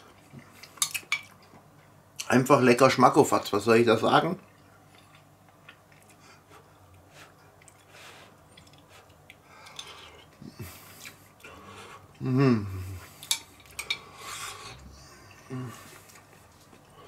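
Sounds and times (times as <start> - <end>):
person humming mmm: 12.2 - 13.2, 14.6 - 16.0.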